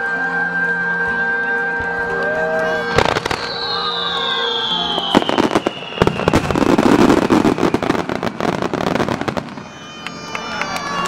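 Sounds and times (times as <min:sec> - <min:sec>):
firework whistle falling in pitch: 0:00.4 - 0:11.0
crackling firework bangs: 0:02.9 - 0:11.0
firework bang: 0:03.0 - 0:10.3.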